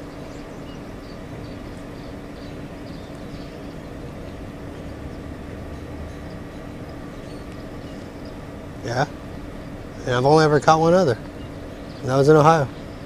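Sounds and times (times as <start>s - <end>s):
faint bird chirps: 0.0s - 8.4s
industrial machinery hum: 0.0s - 13.0s.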